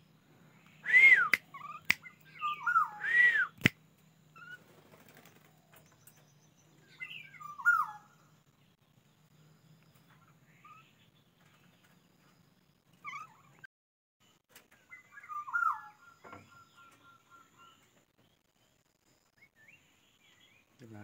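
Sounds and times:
bird whistled calls: 0.6s - 3.8s, 6.9s - 8.2s, 14.9s - 17.8s
sharp clicks: 3.6s - 3.8s.

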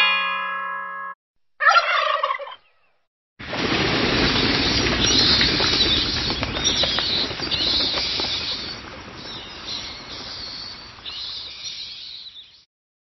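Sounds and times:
bat wings flapping: 3.4s - 11.7s.

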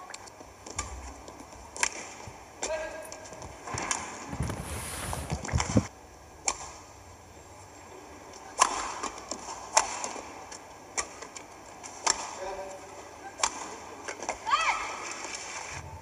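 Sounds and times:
rackets hitting shuttlecock: 10.9s - 12.4s.

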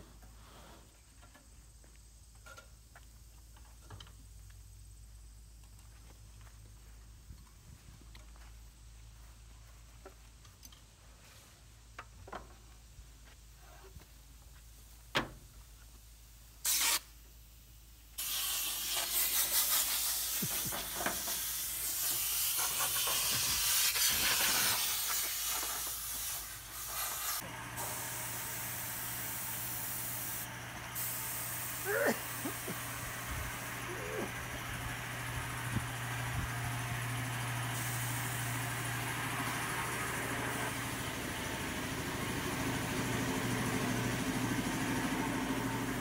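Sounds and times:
compressed air hissing: 16.6s - 17.1s, 18.2s - 34.4s, 37.8s - 38.6s
short sharp air hiss: 16.6s - 17.2s, 18.2s - 28.0s.

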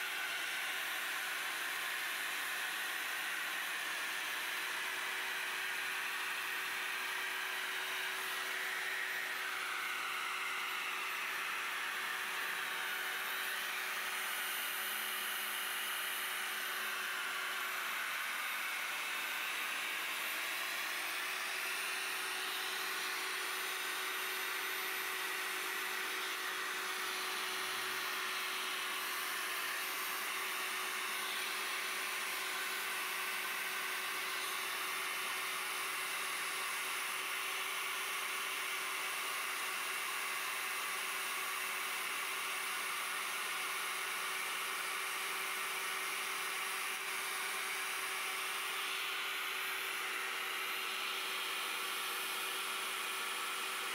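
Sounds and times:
core drill motor whine: 0.0s - 53.9s
drill bit grinding hiss: 42.7s - 53.9s.

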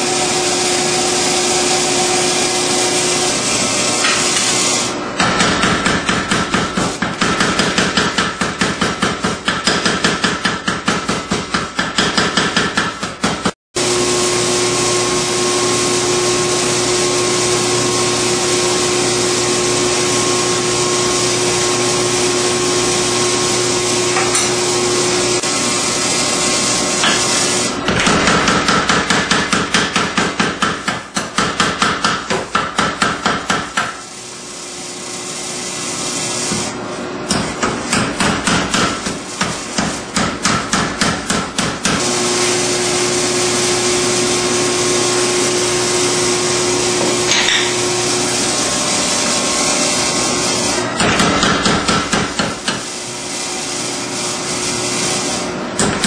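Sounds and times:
power hammer striking steel: 5.2s - 13.6s, 24.1s - 24.6s, 27.9s - 34.0s, 37.3s - 42.0s, 47.0s - 47.8s, 51.0s - 52.9s.

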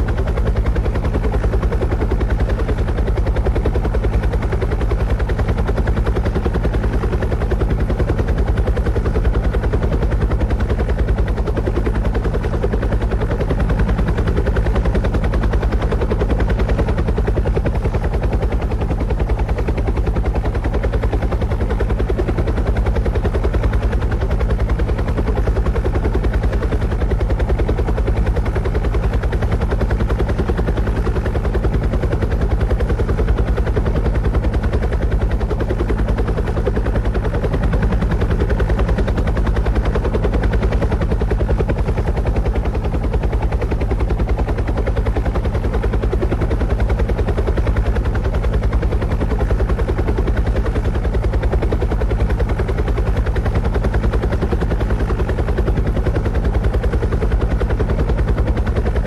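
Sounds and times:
helicopter rotor chop: 0.0s - 59.0s.

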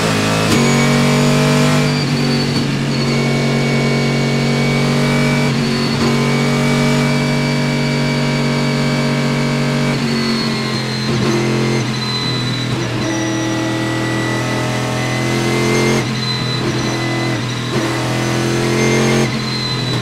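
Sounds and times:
race car engine running: 0.0s - 20.0s.

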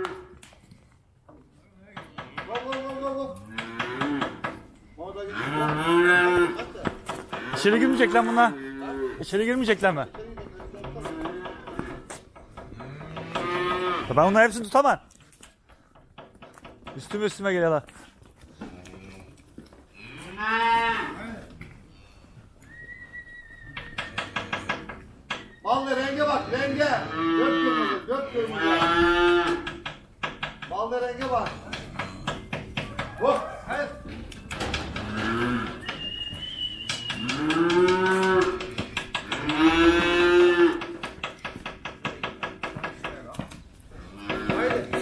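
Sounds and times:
calf mooing: 5.2s - 6.6s, 7.4s - 9.3s, 12.8s - 14.2s, 20.0s - 21.2s, 26.1s - 29.8s, 34.9s - 35.8s, 37.2s - 41.0s.

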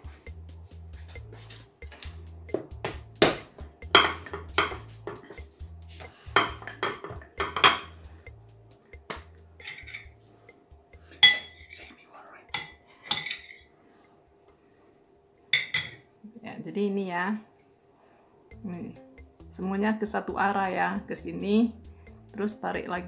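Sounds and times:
hands slapping dough on wood: 1.1s - 5.4s, 9.0s - 9.3s.

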